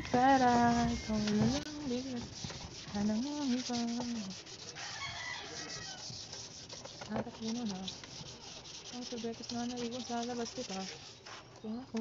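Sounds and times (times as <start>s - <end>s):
wet sandpaper rasping on plastic: 0.0s - 11.4s.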